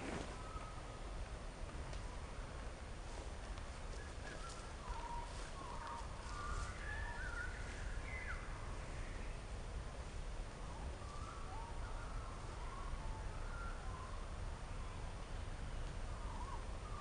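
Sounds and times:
birds chirping and whistling: 3.9s - 9.2s, 11.0s - 14.2s, 16.2s - 17.0s.

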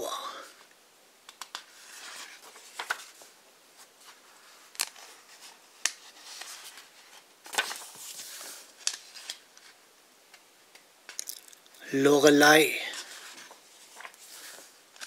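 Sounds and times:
paper rustling: 1.4s - 9.8s, 12.9s - 15.0s.

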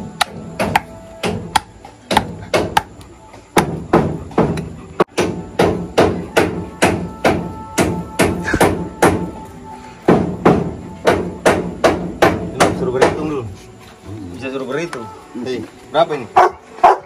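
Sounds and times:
machete chopping meat on wooden board: 0.1s - 9.2s.

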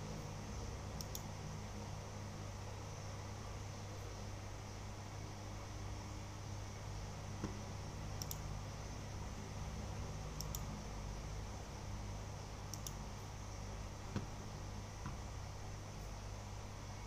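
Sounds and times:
low room hum: 0.0s - 17.0s
faint sharp clicks: 1.0s - 1.3s, 8.2s - 8.4s, 10.4s - 10.7s, 12.7s - 13.0s.

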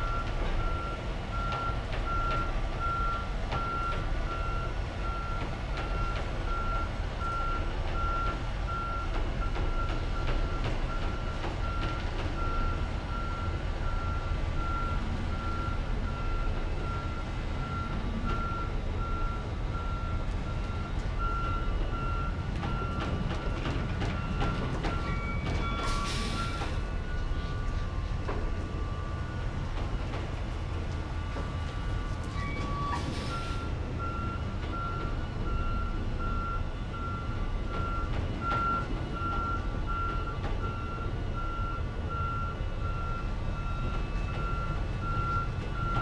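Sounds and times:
reversing alarm beeps: 0.0s - 30.3s, 31.1s - 46.0s
diesel engine running: 0.0s - 46.0s
air brakes hissing: 25.0s - 27.5s, 32.3s - 33.8s.

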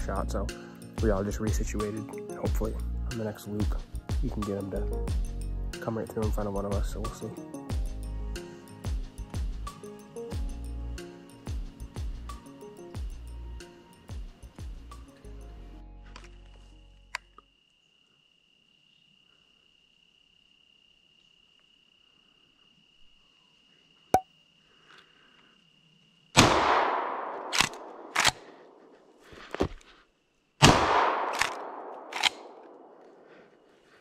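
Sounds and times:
shotgun blasts with echo: 26.4s - 28.7s, 30.6s - 33.0s.

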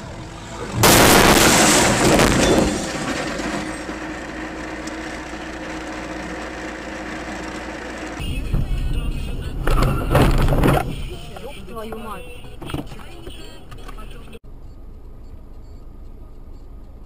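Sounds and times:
car crash impact: 0.8s - 4.5s, 8.2s - 11.5s
steady hum: 3.7s - 14.4s
windshield cracking: 8.3s - 14.2s.

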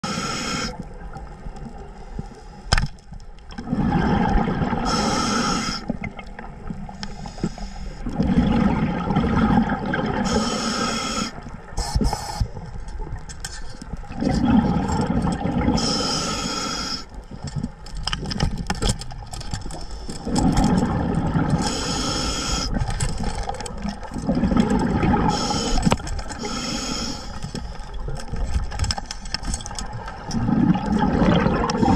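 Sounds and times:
churning water underwater: 0.0s - 31.9s.

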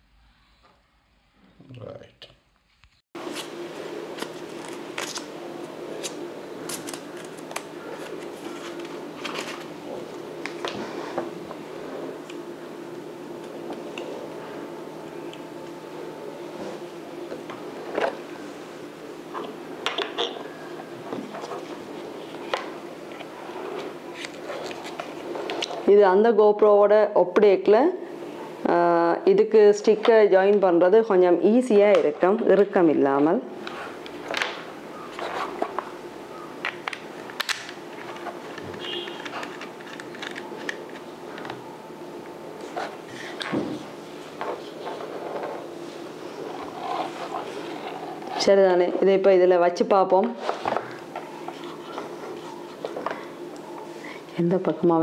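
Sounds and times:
steady hum: 3.2s - 55.0s
plastic camera parts clicking: 39.1s - 40.8s.

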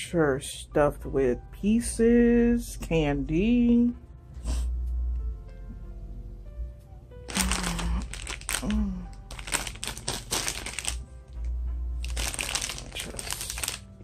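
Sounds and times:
quiet background music: 0.0s - 14.0s
plastic wrapper crinkling: 7.3s - 14.0s.

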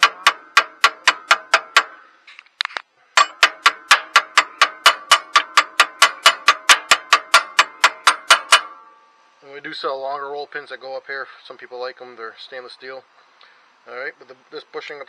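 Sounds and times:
hammer tapping metal pin: 0.0s - 2.0s, 3.2s - 8.8s.

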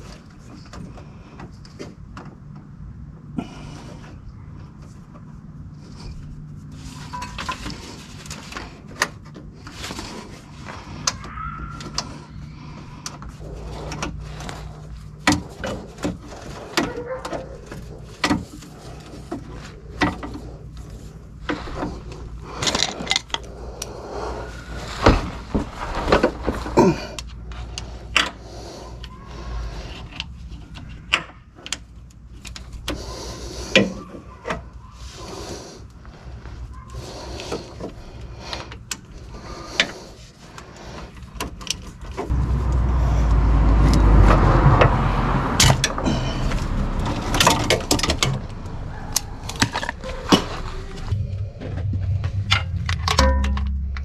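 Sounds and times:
steady low hum: 45.8s - 54.0s.

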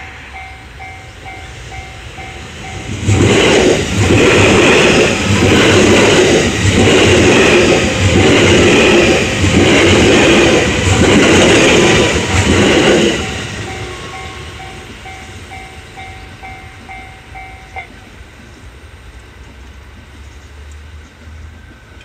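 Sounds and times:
level crossing warning bell: 0.0s - 3.4s, 13.0s - 18.2s
electric train passing: 0.0s - 22.0s.

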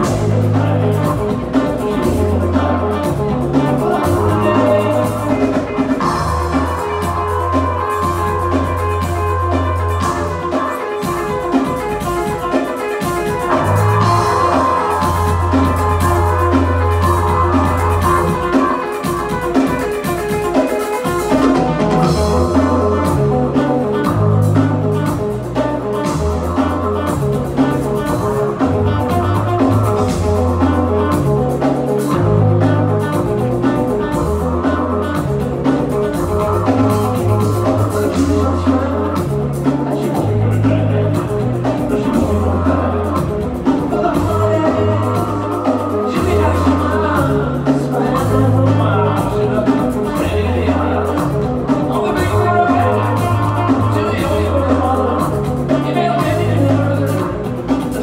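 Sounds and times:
upright bass low notes: 0.0s - 19.5s, 21.3s - 58.0s
live rock band playing: 0.0s - 58.0s.

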